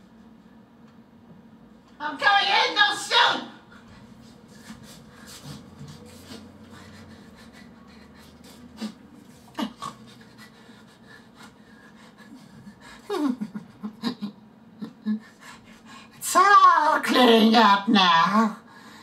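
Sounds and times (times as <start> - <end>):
man huffing and panting: 3.8 - 16.1.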